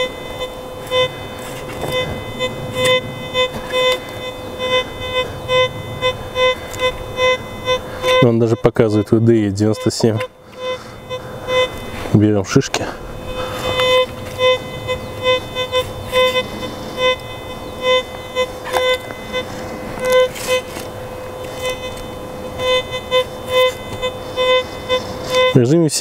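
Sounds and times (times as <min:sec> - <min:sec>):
faint steady hum: 0:00.0 - 0:26.0
metal detector beeps: 0:00.0 - 0:26.0.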